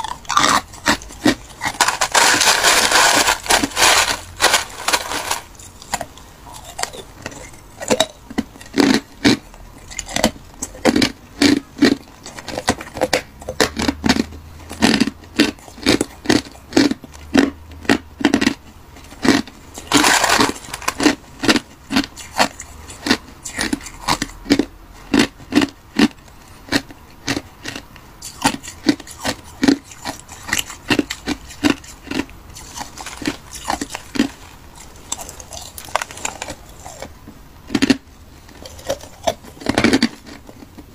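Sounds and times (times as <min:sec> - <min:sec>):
metal spoon scraping ice: 0:00.0 - 0:11.0, 0:19.2 - 0:24.3, 0:28.2 - 0:37.1
crunching ice with teeth: 0:00.0 - 0:40.9.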